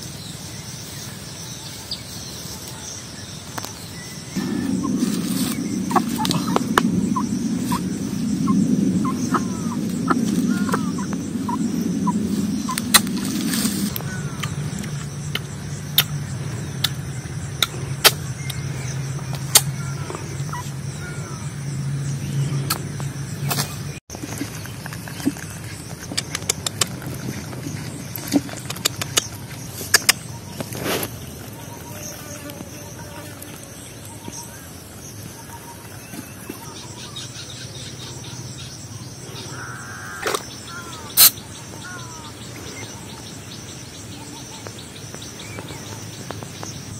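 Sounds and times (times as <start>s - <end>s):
steady low rumble: 4.3s - 30.6s
rooster pecking clicks: 26.1s - 27.0s.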